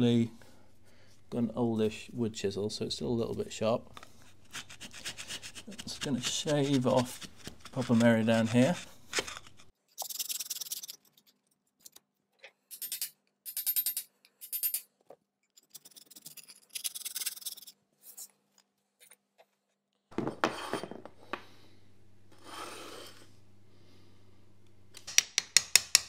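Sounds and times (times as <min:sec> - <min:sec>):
chisel scraping plaster: 0:04.2 - 0:11.3.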